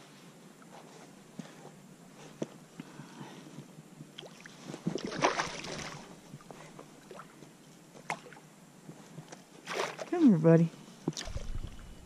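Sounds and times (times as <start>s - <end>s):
fish splashing in water: 4.2s - 6.1s, 11.1s - 11.9s.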